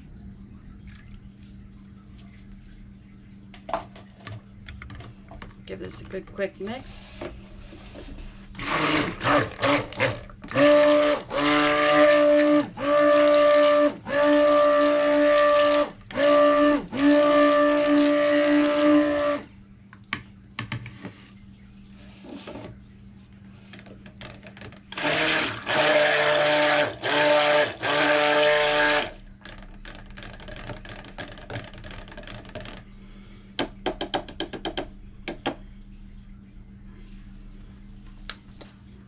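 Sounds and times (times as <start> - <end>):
stick blender running: 8.5 - 19.5, 24.9 - 32.8.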